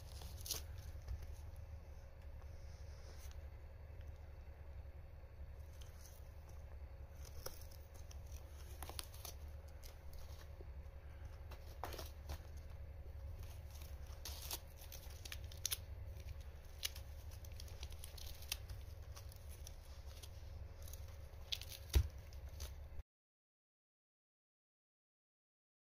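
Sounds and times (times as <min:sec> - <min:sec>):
cat shredding cardboard: 0:00.0 - 0:03.4, 0:05.5 - 0:23.0
low hum: 0:00.0 - 0:23.0.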